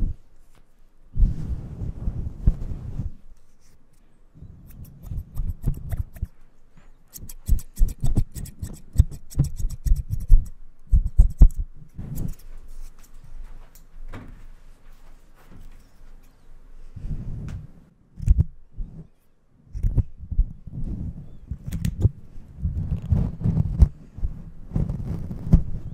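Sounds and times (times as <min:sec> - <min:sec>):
rustling thumps on microphone: 0:01.2 - 0:03.2, 0:22.0 - 0:25.9
scissors snipping: 0:04.6 - 0:06.3, 0:07.1 - 0:12.4.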